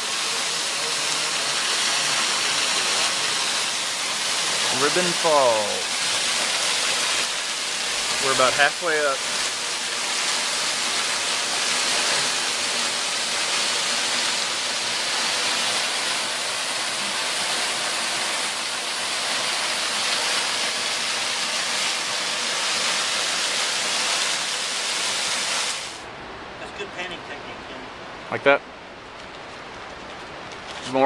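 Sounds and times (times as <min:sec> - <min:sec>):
waterfall splashing onto rock: 0:00.0 - 0:26.0.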